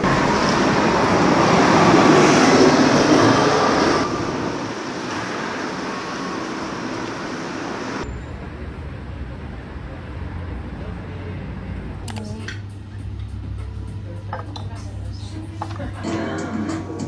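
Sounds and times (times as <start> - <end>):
street traffic passing: 0.0 - 17.0.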